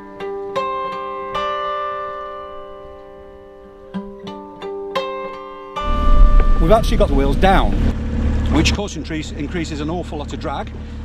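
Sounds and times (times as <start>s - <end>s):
acoustic guitar plucked notes: 0.0s - 8.8s.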